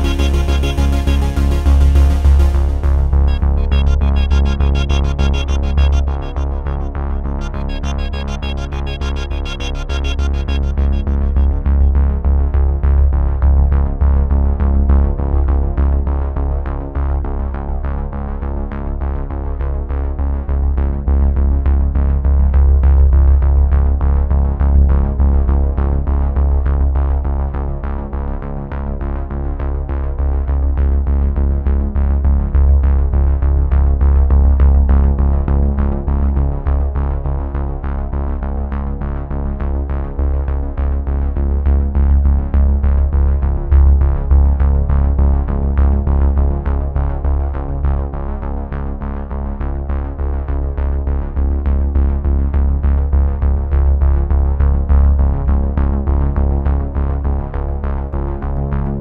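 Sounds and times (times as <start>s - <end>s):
electronic music with heavy bass: 0.0s - 13.2s.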